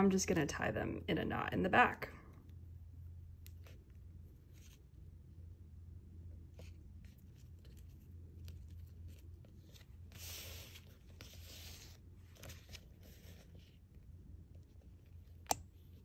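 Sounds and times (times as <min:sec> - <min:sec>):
low steady hum: 0:00.0 - 0:16.0
silk thread rustling: 0:02.4 - 0:05.3, 0:06.3 - 0:16.0.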